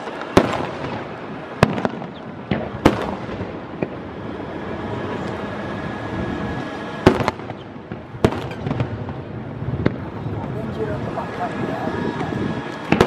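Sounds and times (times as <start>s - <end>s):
firework shells bursting: 7.0s - 10.1s, 12.6s - 13.0s.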